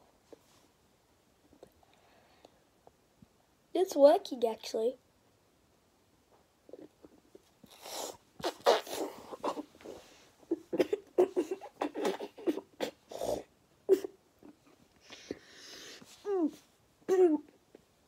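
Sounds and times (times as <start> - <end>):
boy gagging and groaning: 10.5 - 14.6
breathy snorts: 11.9 - 13.5.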